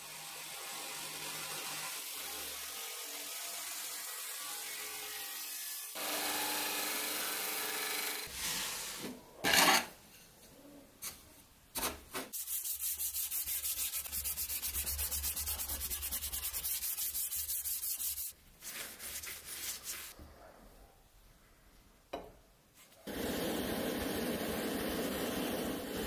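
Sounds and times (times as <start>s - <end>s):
sandpaper sanding knife blade: 12.3s - 20.1s.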